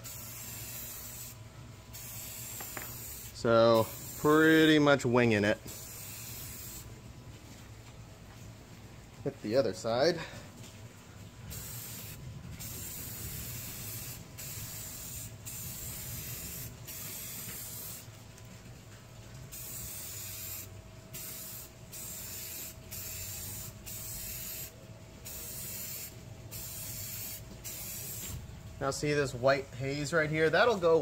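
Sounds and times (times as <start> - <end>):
aerosol spray can hissing: 0.0 - 4.6, 5.7 - 6.9, 11.5 - 18.1, 19.5 - 28.4.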